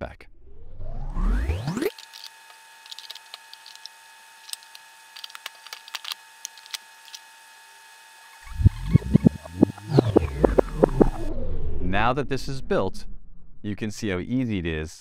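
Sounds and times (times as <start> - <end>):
cards clicking into slots: 1.7 - 7.3.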